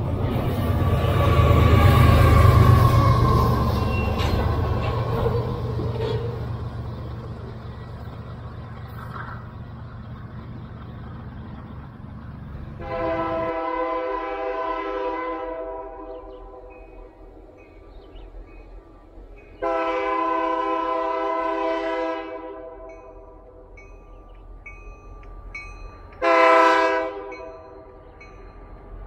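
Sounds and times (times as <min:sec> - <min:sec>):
freight train cars rumbling: 0:00.0 - 0:29.0
locomotive air horn blast: 0:12.8 - 0:16.8, 0:19.6 - 0:23.0, 0:26.2 - 0:27.5.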